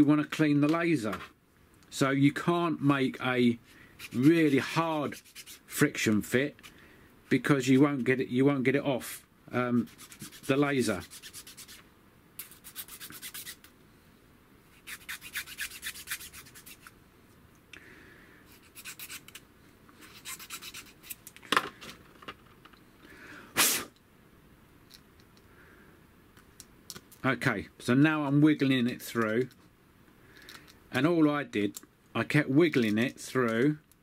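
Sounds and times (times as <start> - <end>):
needle file rasping: 4.0 - 5.7, 9.8 - 11.8, 12.4 - 13.6, 14.8 - 16.9, 18.5 - 19.4, 20.0 - 21.2
short rush of noise: 23.5 - 24.0.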